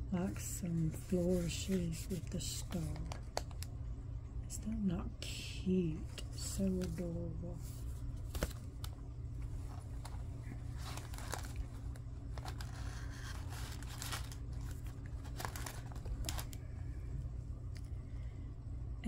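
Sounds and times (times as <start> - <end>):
steady low hum: 0.0 - 19.0
paper and plastic packaging rustling: 0.4 - 3.7, 6.6 - 16.7.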